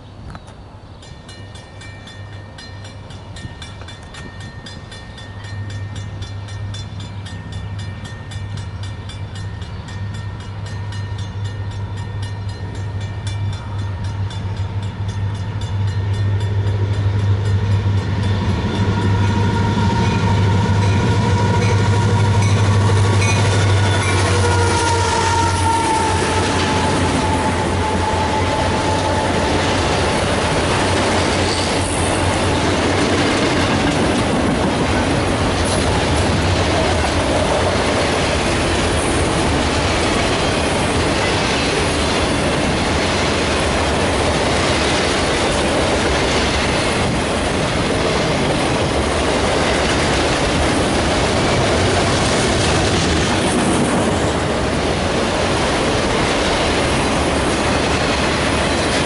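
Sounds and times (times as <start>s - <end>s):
diesel locomotive engine drone: 0.0s - 59.0s
train cars rolling by: 0.0s - 59.0s.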